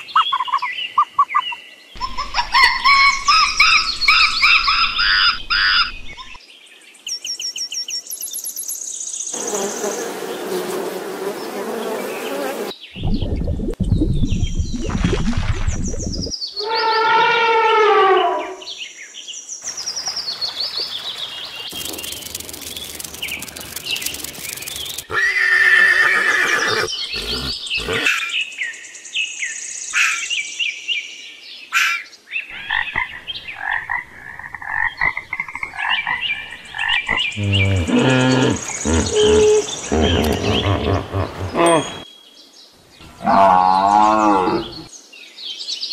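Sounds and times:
bird chirps: 0.0s - 6.4s, 19.6s - 25.2s, 32.5s - 42.4s
animal calls: 24.1s - 28.3s, 37.1s - 42.0s.

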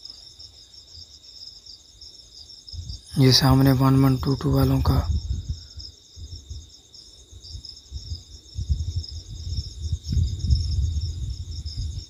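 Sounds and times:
wind buffeting: 2.7s - 12.0s.

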